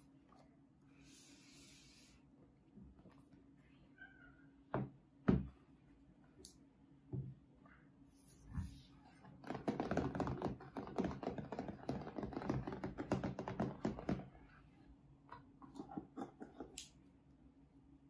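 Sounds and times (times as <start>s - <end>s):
fingertips tapping on laptop lid: 9.4s - 14.3s.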